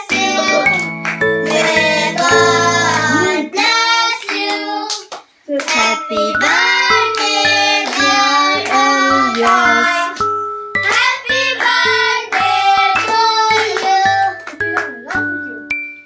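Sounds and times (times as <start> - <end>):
hand clapping: 0.0 - 3.4, 4.2 - 15.4
musical backing: 0.0 - 4.6, 5.7 - 16.0
children singing: 0.0 - 4.9, 5.8 - 10.2.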